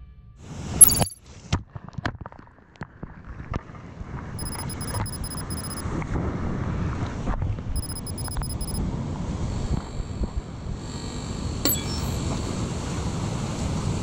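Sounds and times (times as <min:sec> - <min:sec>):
fast high electronic ticks: 0:00.8 - 0:01.2, 0:04.4 - 0:05.8, 0:07.8 - 0:08.8.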